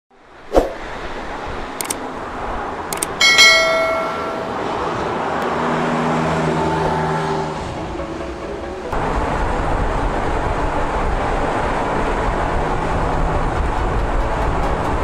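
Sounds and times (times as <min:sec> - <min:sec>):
quick clicks: 0:01.7 - 0:02.0, 0:02.9 - 0:03.2
ringing notification chime: 0:03.2 - 0:04.6.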